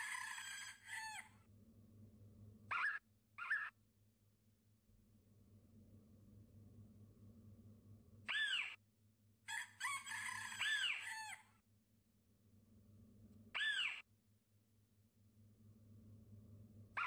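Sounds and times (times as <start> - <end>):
faint low hum: 4.8 - 8.4
chickens squawking: 9.9 - 11.4.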